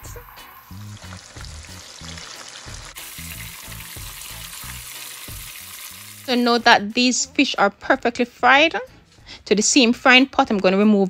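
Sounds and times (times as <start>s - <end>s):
oil sizzling and crackling: 0.0s - 6.9s.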